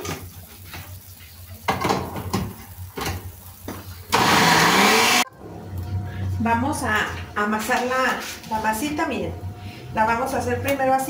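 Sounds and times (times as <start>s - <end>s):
blender motor grinding: 4.1s - 5.3s.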